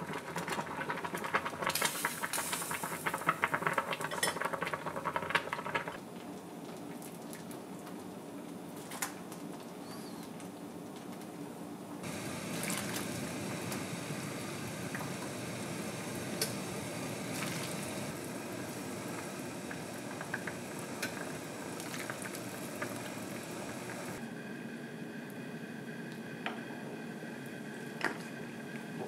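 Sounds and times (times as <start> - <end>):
soup bubbling with pops: 14.8 - 24.2.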